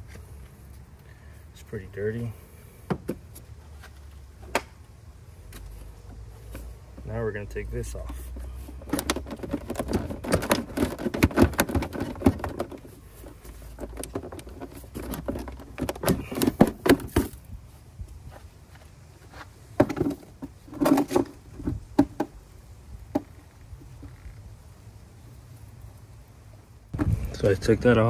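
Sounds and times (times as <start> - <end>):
engine part clicking and clattering: 8.0 - 17.4.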